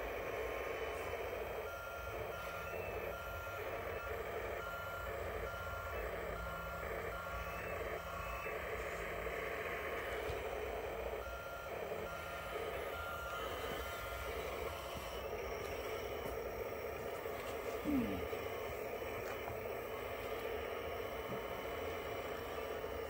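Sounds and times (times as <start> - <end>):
model loader running noise: 0.0 - 23.0
reversing beeper: 0.3 - 23.0.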